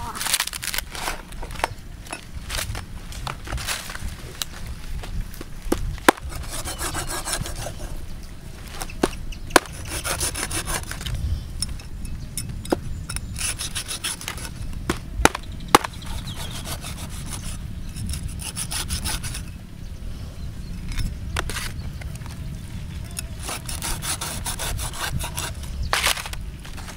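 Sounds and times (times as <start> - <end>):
cleaver scraping through flesh: 6.1 - 7.9, 15.8 - 19.4.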